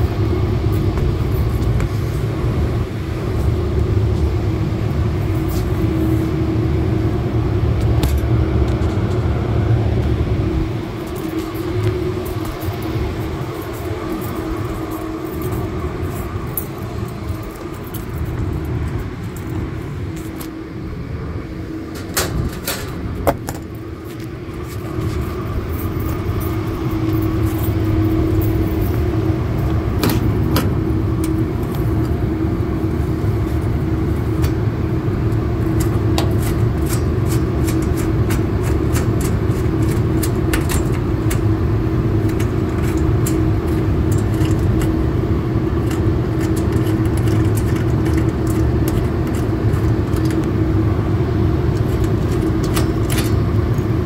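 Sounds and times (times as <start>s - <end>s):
refrigeration equipment humming: 0.0s - 54.0s
metallic jangles: 11.1s - 20.3s, 25.2s - 29.2s.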